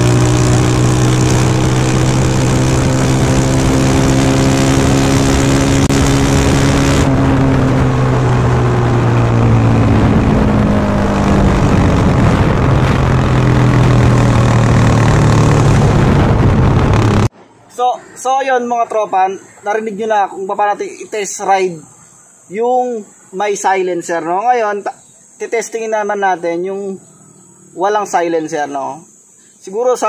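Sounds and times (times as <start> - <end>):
motorcycle engine running: 0.0 - 17.3.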